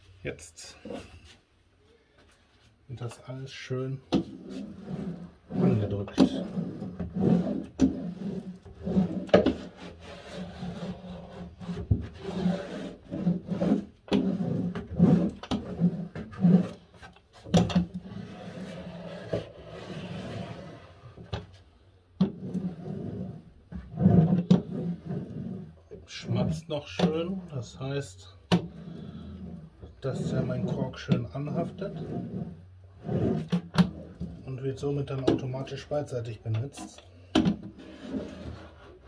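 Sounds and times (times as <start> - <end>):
hand roller rubbing over cork: 4.2 - 21.3, 22.2 - 27.8, 28.6 - 34.9, 37.7 - 39.0.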